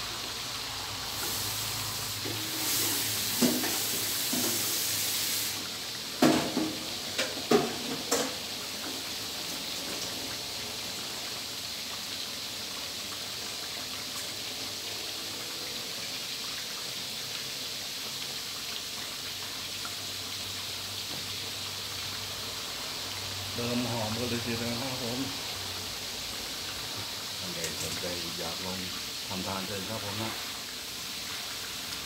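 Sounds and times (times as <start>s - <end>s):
loud hiss: 0.0s - 6.3s
oil sizzling and bubbling: 0.0s - 32.0s.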